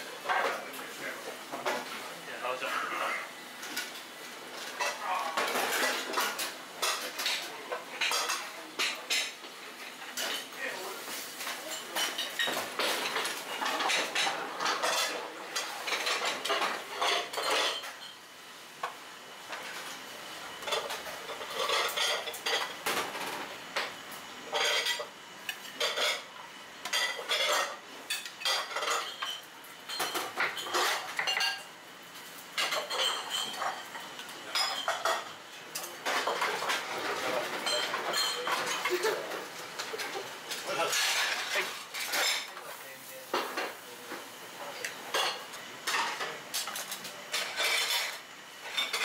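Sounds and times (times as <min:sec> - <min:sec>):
dishes and chopsticks clattering: 0:03.6 - 0:09.4, 0:10.1 - 0:10.6, 0:11.4 - 0:18.2, 0:20.6 - 0:23.9, 0:24.5 - 0:31.7, 0:32.6 - 0:42.6, 0:43.3 - 0:49.0.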